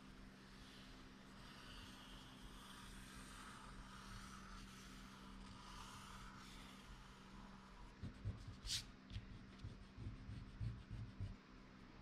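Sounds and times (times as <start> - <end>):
marker scratching on paper: 8.0 - 11.4.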